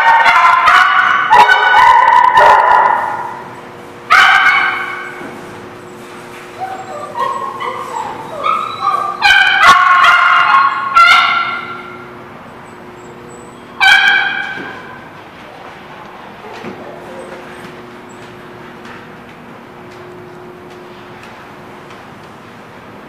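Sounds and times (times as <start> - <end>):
dogs barking and yipping: 0.0 - 15.1.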